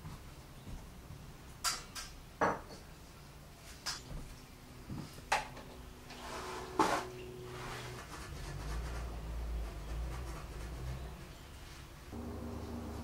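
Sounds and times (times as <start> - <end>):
soft brushing: 6.1 - 12.0
faint steady hum: 10.5 - 13.0.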